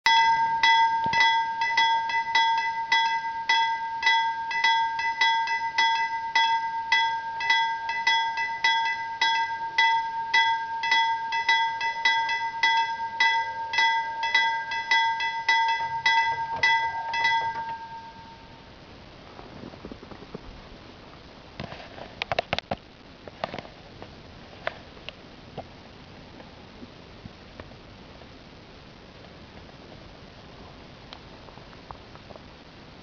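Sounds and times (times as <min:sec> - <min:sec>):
level crossing bell ringing: 0:00.1 - 0:18.6.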